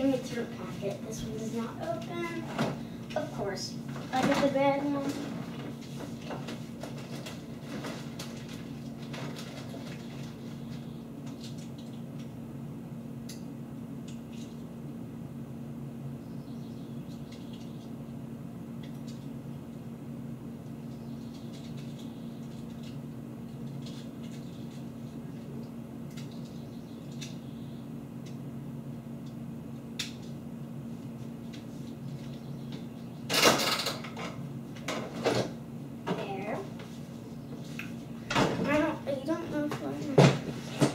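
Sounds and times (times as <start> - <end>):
refrigerator hum: 0.0 - 40.9
items rustling and knocking in fridge: 3.5 - 10.8, 38.3 - 40.9.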